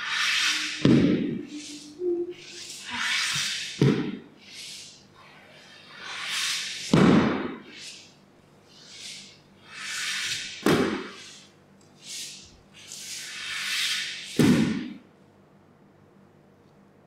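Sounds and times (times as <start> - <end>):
soft hisses: 4.4 - 7.0, 7.6 - 14.4.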